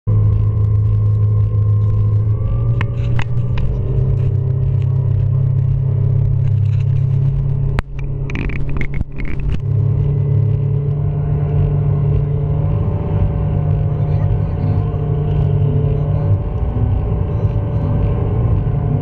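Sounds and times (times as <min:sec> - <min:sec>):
speedboat engine rumbling: 0:00.0 - 0:19.0.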